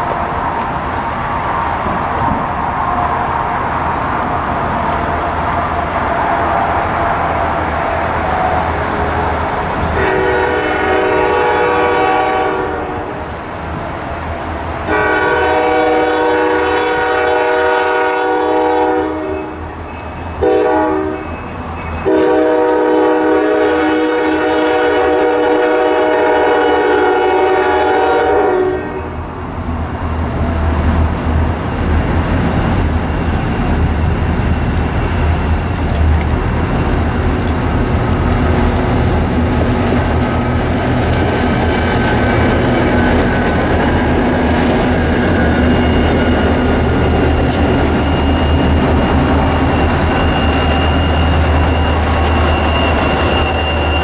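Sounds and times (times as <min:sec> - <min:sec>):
diesel freight train rumble: 0:00.0 - 0:54.0
locomotive air horn blasts: 0:10.0 - 0:13.2, 0:14.9 - 0:19.6, 0:20.4 - 0:21.4, 0:22.0 - 0:29.2.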